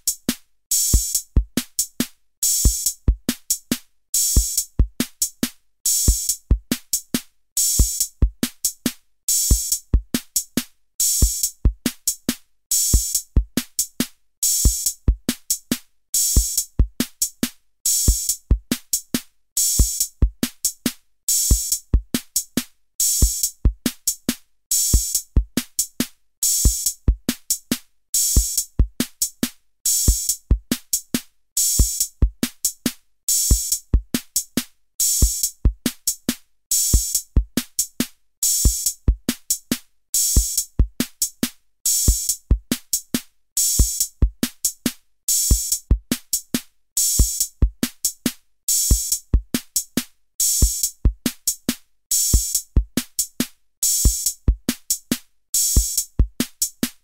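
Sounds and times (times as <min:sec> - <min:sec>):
electronic drum beat: 0:52.2 - 0:57.0.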